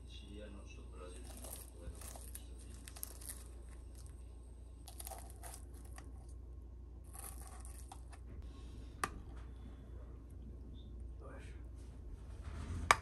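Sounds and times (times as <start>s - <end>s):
pastry crust crackling and crunching: 0.2s - 8.4s.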